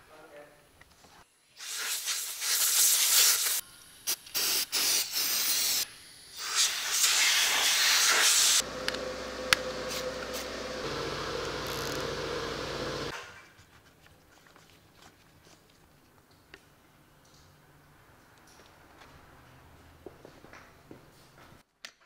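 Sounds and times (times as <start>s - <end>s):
compressed air blow gun hissing: 1.6s - 8.6s.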